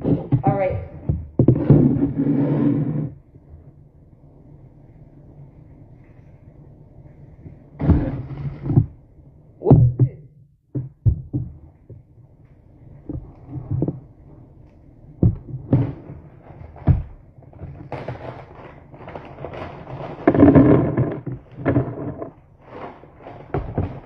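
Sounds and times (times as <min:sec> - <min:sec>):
plastic bag crinkling: 0:17.6 - 0:21.6.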